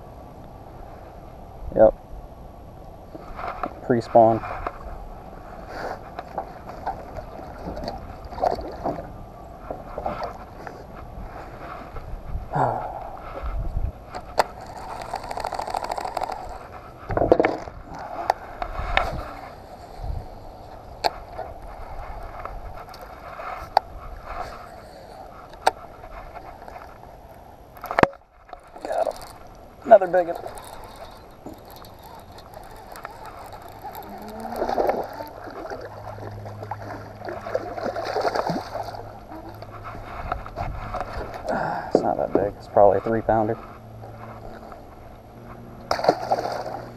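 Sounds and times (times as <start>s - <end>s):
fishing line humming: 4.5s - 41.8s, 42.8s - 46.9s
scraping: 20.8s - 37.7s
fishing reel clicking: 28.7s - 35.4s
fish splashing at surface: 30.2s - 39.2s, 45.9s - 46.9s.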